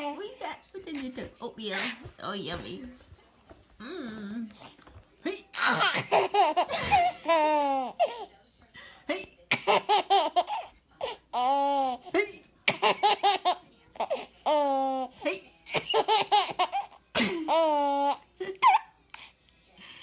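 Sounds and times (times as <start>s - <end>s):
baby laughing: 5.6s - 8.3s, 9.5s - 12.1s, 12.7s - 15.1s, 15.7s - 19.0s.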